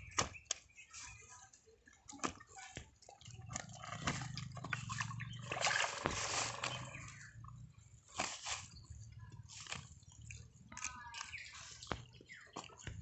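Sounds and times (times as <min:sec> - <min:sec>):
wet clicks and taps of fish: 0:02.0 - 0:04.9, 0:09.6 - 0:13.0.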